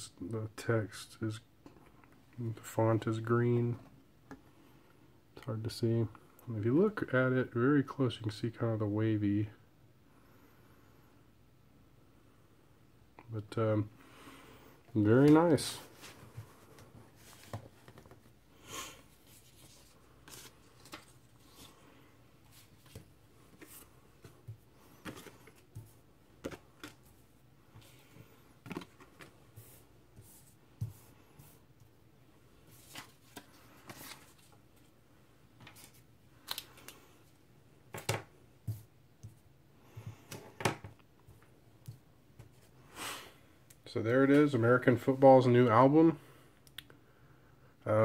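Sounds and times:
paper cards tapping and rustling: 16.0s - 18.3s, 19.3s - 21.7s, 22.5s - 27.1s, 28.6s - 31.6s.

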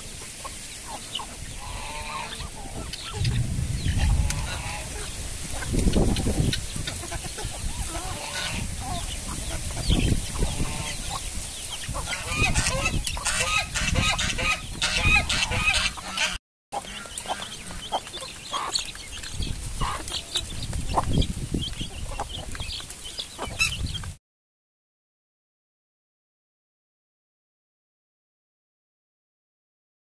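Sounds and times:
chickens clucking: 0.0s - 24.2s
chicks peeping: 0.0s - 24.2s
wind on microphone: 1.3s - 16.1s, 19.2s - 22.8s, 23.5s - 24.2s.

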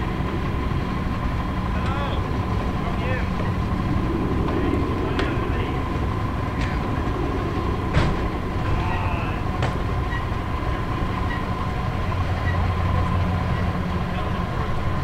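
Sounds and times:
aircraft and ground equipment rumble: 0.0s - 15.0s
steady high whine: 0.0s - 15.0s
sharp knocks: 7.9s - 8.8s.

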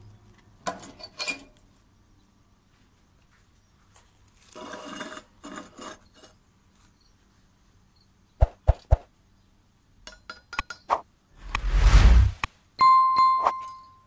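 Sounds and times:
steel plate scraping on stone: 4.5s - 6.4s.

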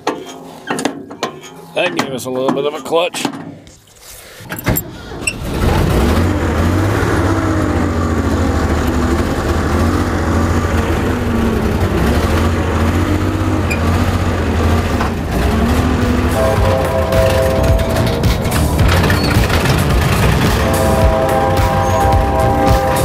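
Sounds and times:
truck engine running: 4.7s - 23.0s.

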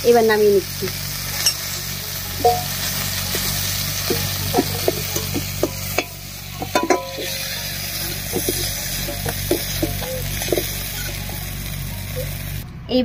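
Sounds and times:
prawns sizzling in oil: 0.0s - 12.6s
metal spatula scraping pan: 2.4s - 11.3s.

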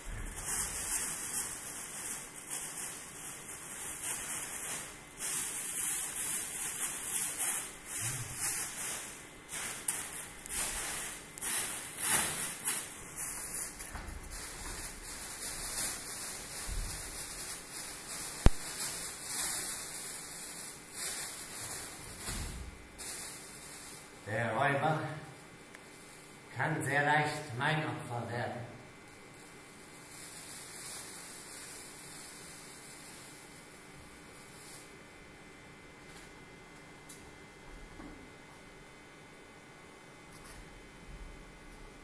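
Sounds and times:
plastic bags rustling: 0.0s - 26.5s.

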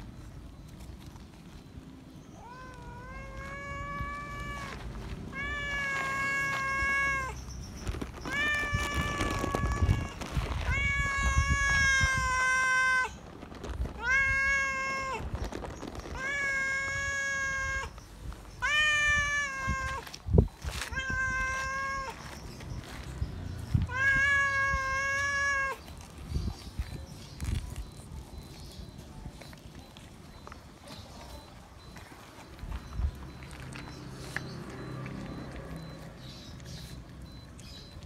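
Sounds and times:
cat meowing loudly: 2.4s - 7.4s, 8.2s - 13.2s, 13.9s - 15.3s, 16.1s - 18.0s, 18.6s - 22.3s, 23.7s - 25.8s.

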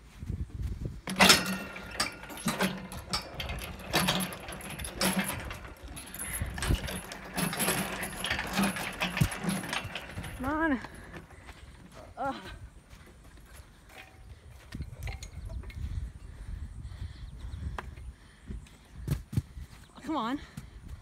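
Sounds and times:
metal fittings clanking and rattling: 1.0s - 12.0s, 13.8s - 16.0s.

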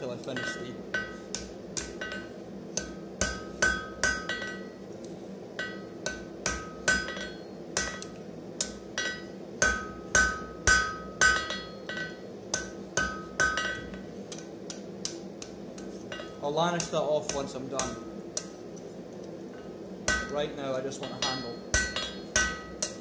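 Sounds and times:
hammer ringing on steel and anvil: 0.3s - 4.8s, 5.6s - 14.0s, 20.1s - 23.0s.

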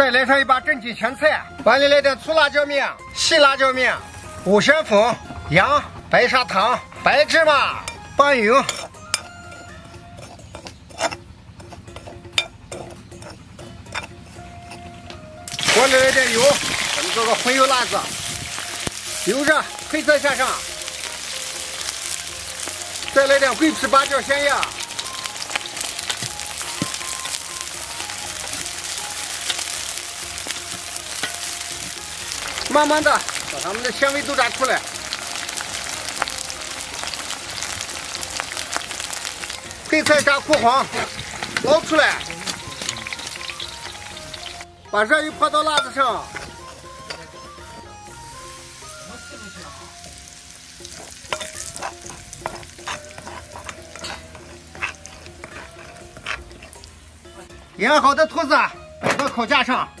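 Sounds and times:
metal spoon scraping a bowl: 8.6s - 9.3s, 10.1s - 14.8s, 51.3s - 56.8s
hot oil sizzling in a wok: 15.5s - 44.6s, 48.4s - 57.5s.

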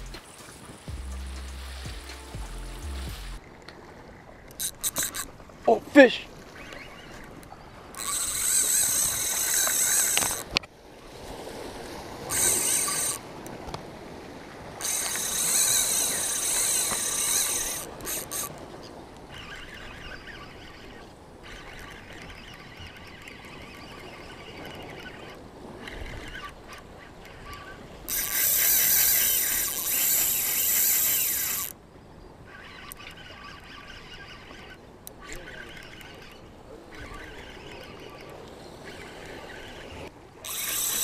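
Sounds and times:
fishing reel drag buzzing: 4.5s - 5.3s, 6.6s - 10.6s, 12.3s - 13.3s, 14.8s - 18.6s, 19.3s - 31.8s, 32.5s - 41.0s.

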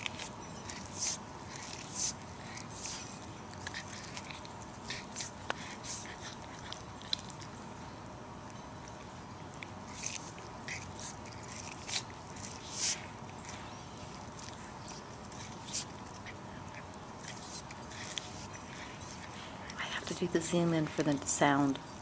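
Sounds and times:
cat crunching corn kernels: 0.0s - 20.3s.

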